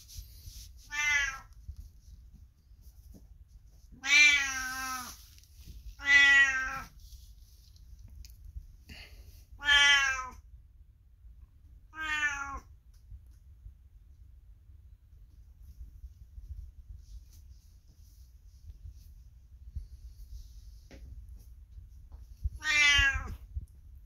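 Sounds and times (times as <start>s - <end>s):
cat meowing loudly: 0.9s - 1.5s, 4.0s - 5.2s, 6.0s - 6.9s, 9.6s - 10.4s, 11.9s - 12.7s, 22.6s - 23.4s.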